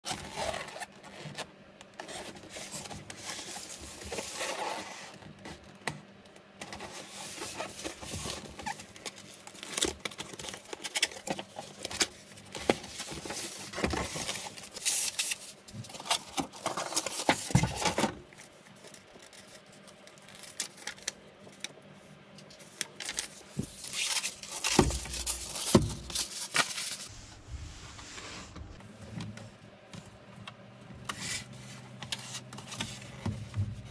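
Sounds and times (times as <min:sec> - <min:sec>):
cardboard flaps scraping and rustling: 0:00.1 - 0:05.6, 0:06.6 - 0:18.3, 0:23.0 - 0:29.4
packing material crinkling: 0:06.8 - 0:21.8, 0:22.4 - 0:27.1.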